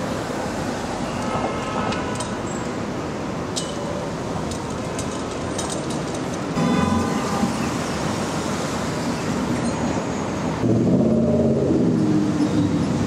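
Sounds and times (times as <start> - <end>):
heavy street traffic rumble: 0.0 - 13.0
metallic clinks and rattles: 3.5 - 6.6.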